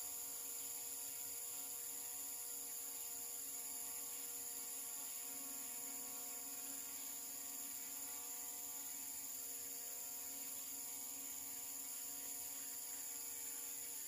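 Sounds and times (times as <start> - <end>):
high-pitched insect buzz: 0.0 - 14.0.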